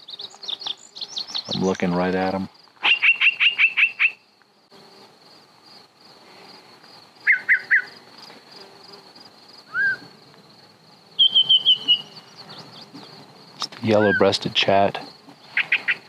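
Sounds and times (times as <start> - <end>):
high-pitched insect trill: 0.0 - 16.0
bird whistling song phrases: 2.8 - 4.2, 7.3 - 7.9, 9.7 - 10.1, 11.2 - 12.9.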